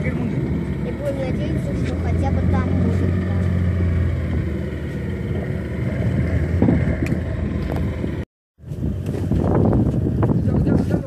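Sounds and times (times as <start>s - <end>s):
boat motor humming: 0.0s - 10.6s
boat rushing through water: 0.0s - 11.0s.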